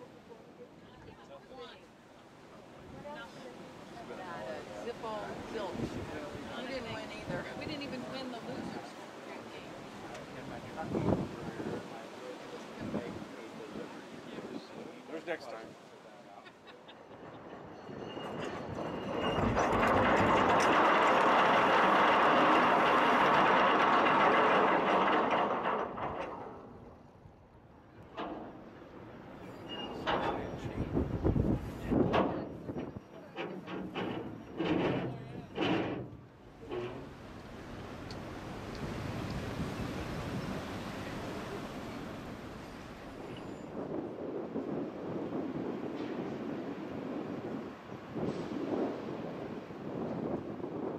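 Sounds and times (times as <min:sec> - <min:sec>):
wind buffeting microphone: 0:04.9 - 0:08.9, 0:10.3 - 0:15.0, 0:17.1 - 0:27.7, 0:28.5 - 0:50.9
anchor chain rattling: 0:17.1 - 0:27.1.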